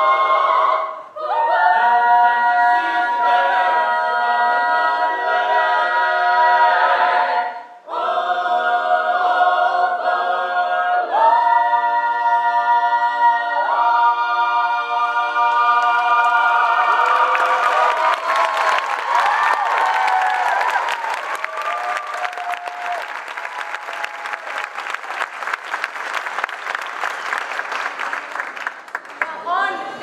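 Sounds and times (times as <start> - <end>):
vocal ensemble singing harmony: 0.0 - 23.0
audience applause: 15.8 - 29.4.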